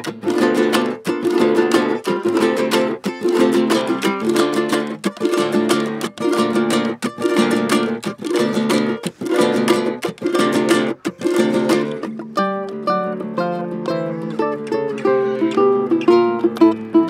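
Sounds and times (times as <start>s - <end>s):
acoustic guitar strumming: 0.0s - 17.0s
ukulele strumming: 0.0s - 17.0s.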